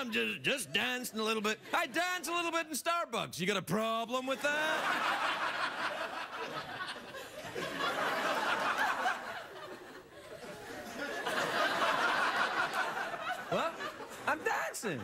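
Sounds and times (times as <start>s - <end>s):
studio audience laughing: 4.3s - 15.0s.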